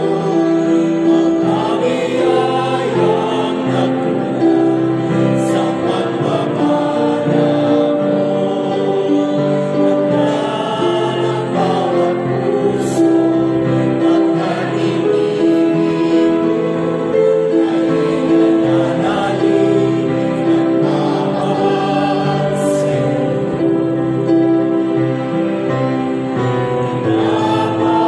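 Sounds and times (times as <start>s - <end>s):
choir singing a hymn: 0.0s - 28.0s.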